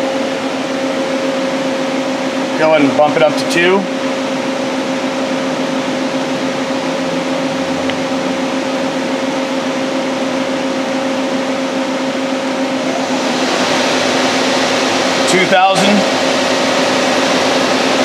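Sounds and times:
lathe spindle whining: 12.6 - 18.0.

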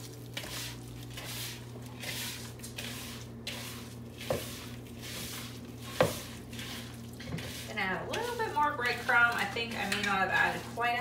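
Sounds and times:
wet squishes of kneading meat: 0.0 - 11.0.

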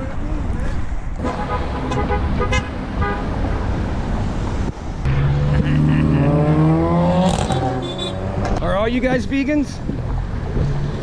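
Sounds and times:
road traffic passing: 0.0 - 11.0
vehicle horn blast: 1.2 - 3.3.

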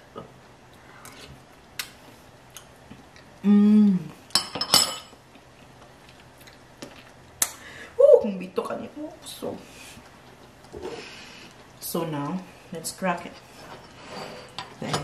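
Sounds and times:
woman humming appreciatively: 3.4 - 4.2.

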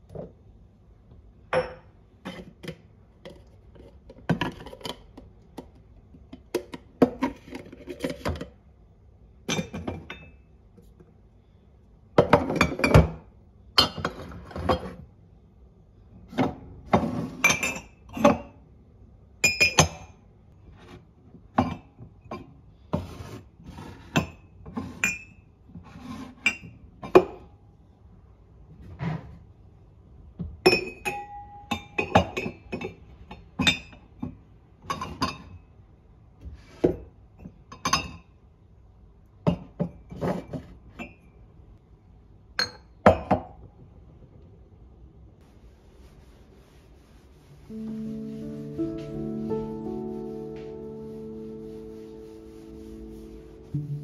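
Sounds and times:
mugs and jars clinking on shelf: 1.5 - 3.5, 9.5 - 10.4, 12.2 - 13.2, 13.8 - 15.0, 16.4 - 18.6, 19.4 - 20.1, 30.7 - 35.6, 37.8 - 38.3.

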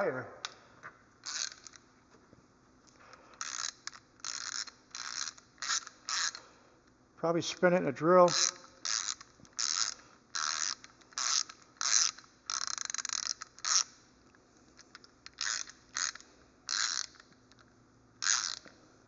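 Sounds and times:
ratchet clicking: 1.2 - 1.9, 3.3 - 6.5, 8.3 - 14.0, 14.7 - 18.8.

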